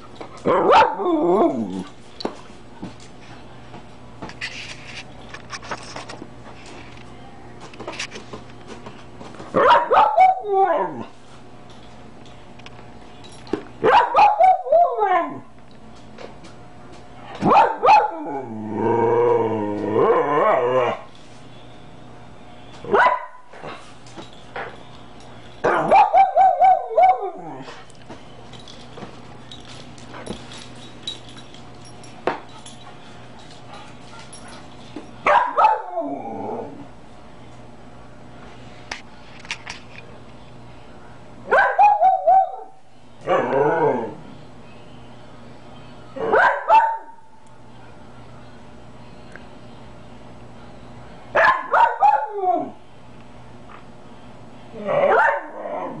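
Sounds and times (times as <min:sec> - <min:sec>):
dog yelping and howling: 0:00.5 - 0:01.8, 0:09.6 - 0:11.1, 0:13.8 - 0:15.5, 0:17.5 - 0:19.4, 0:25.7 - 0:27.7, 0:35.3 - 0:36.8, 0:41.5 - 0:44.2, 0:51.4 - 0:52.8, 0:54.8 - 0:56.0
small dog yelping and howling: 0:25.9 - 0:27.6, 0:41.5 - 0:43.6, 0:51.4 - 0:52.8.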